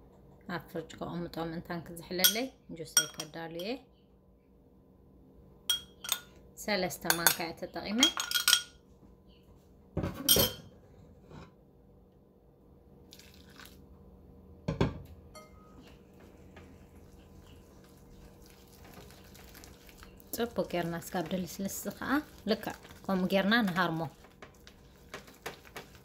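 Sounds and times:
dishes clinking and knocking: 2.2 - 3.3, 5.7 - 6.3, 8.0 - 8.8, 10.0 - 10.7, 14.7 - 15.9
soft rubbing in a bowl: 15.6 - 26.0.

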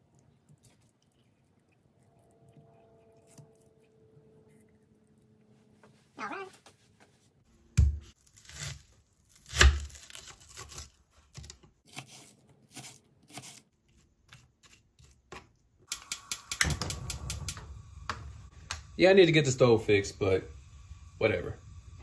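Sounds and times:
knife cutting onion on board: 9.4 - 16.4.

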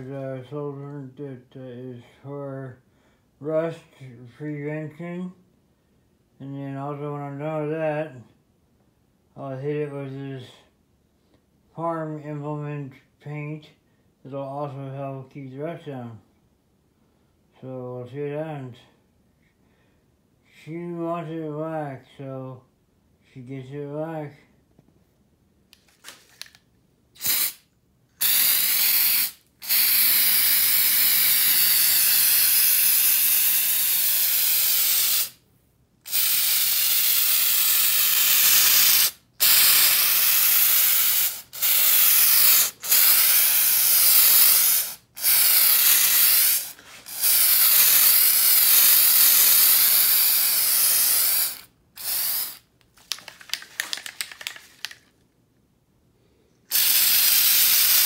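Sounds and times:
aerosol spray can hissing: 27.2 - 27.6, 28.2 - 35.4, 36.1 - 52.6, 56.7 - 58.0.

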